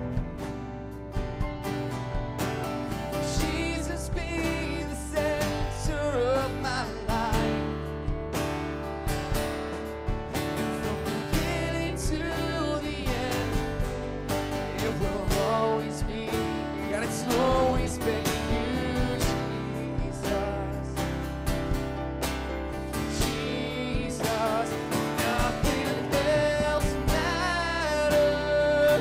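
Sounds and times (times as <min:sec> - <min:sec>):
electric guitar: 0:00.0 - 0:29.0
strummed acoustic guitar: 0:00.0 - 0:29.0
person singing: 0:03.1 - 0:07.7, 0:10.7 - 0:21.1, 0:22.9 - 0:29.0.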